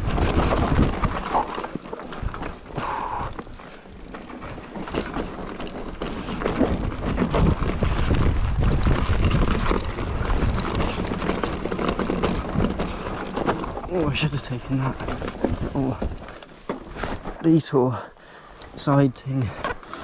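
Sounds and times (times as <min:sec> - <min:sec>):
wind rumbling on microphone: 0:00.0 - 0:04.6, 0:06.2 - 0:16.3
irregular knocks and rattles: 0:00.0 - 0:17.5.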